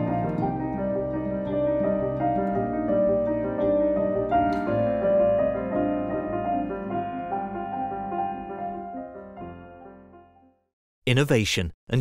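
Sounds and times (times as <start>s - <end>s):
piano playing slow chords: 0.0s - 10.7s.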